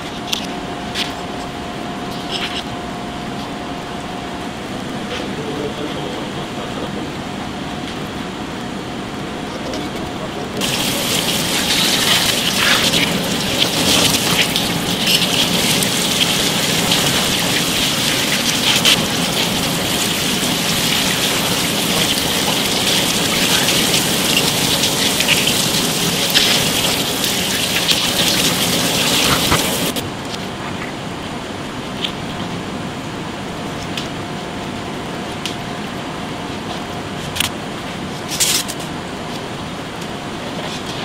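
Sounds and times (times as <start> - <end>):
hose water spraying and splashing: 10.6 - 30.0.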